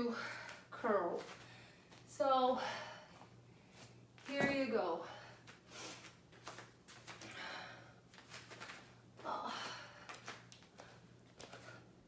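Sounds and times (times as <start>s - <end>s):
faint steady hum: 0.0s - 12.0s
knocks of feet and weights: 4.2s - 4.8s.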